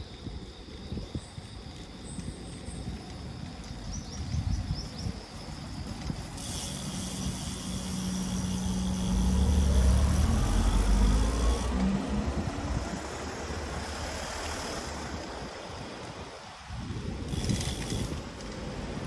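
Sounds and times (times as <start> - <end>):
wind and road noise: 0.0 - 19.0
motor vehicle engine rising: 6.7 - 15.4.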